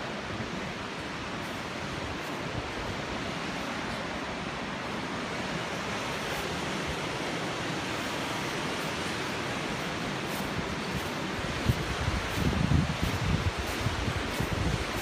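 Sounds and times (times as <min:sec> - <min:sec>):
rushing wind: 0:00.0 - 0:15.0.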